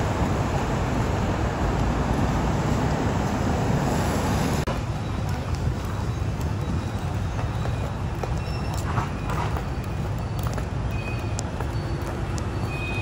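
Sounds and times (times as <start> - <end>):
cars and motorbikes passing: 0.0 - 6.0.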